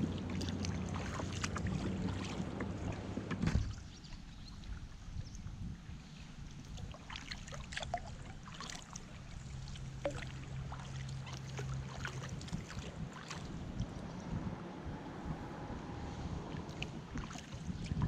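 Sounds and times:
water dripping off paddles: 0.0 - 3.8, 6.5 - 14.2
wind noise on microphone: 3.2 - 6.9, 12.1 - 18.0.

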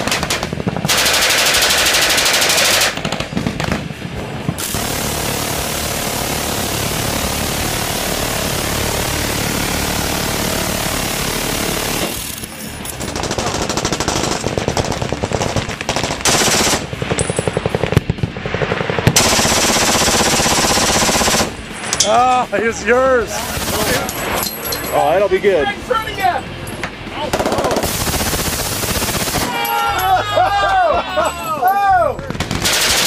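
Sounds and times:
machine gun bursts: 0.0 - 3.4, 4.6 - 17.9, 19.2 - 21.6, 27.3 - 29.6, 32.4 - 33.0
minigun continuous firing: 0.0 - 21.8, 27.2 - 29.7, 32.2 - 33.0.

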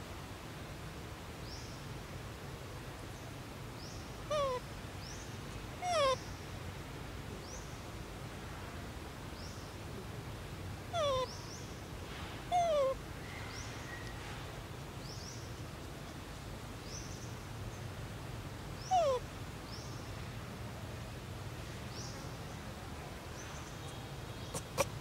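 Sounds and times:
young macaque whimpering coos: 4.3 - 4.6, 5.8 - 6.2, 10.9 - 11.4, 12.5 - 13.0, 18.8 - 19.2, 24.5 - 25.0.

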